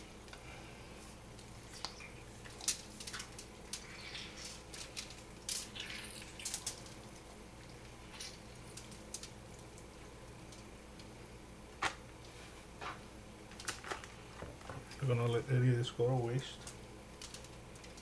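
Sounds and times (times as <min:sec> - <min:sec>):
juice dripping on foil: 0:01.3 - 0:11.1, 0:16.6 - 0:18.0.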